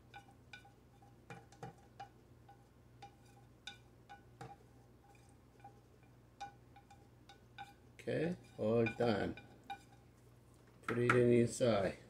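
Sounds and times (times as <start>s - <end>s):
chopsticks tapping a ceramic plate: 0.0s - 7.8s, 8.4s - 10.1s.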